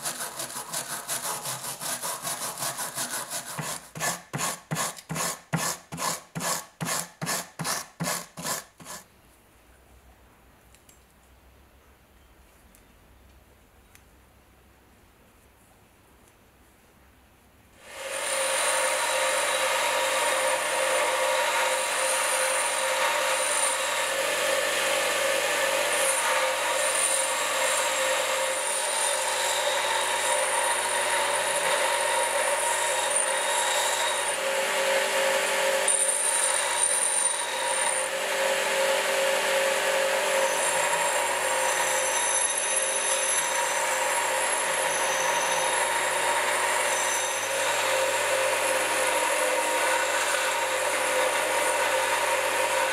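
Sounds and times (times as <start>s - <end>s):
metal grinding on grinding wheel: 0.0s - 9.1s, 17.9s - 52.9s
bench grinder motor whine: 17.9s - 52.9s.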